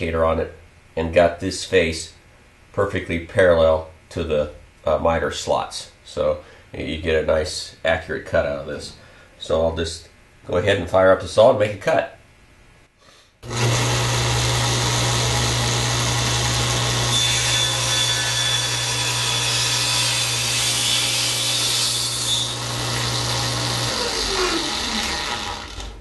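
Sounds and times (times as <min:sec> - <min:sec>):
saw blade winding down: 0:13.4 - 0:26.0
table saw running: 0:13.4 - 0:26.0.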